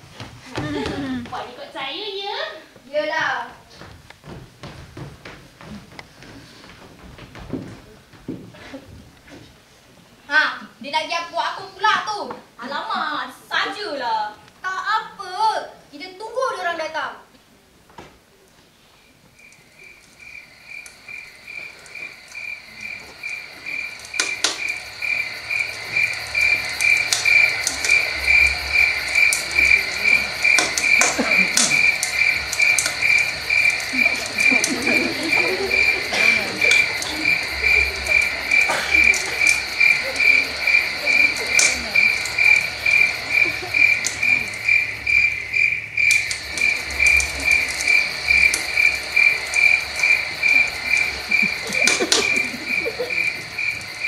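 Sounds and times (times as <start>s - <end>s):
cricket chirping: 0.0s - 1.6s, 18.9s - 54.0s.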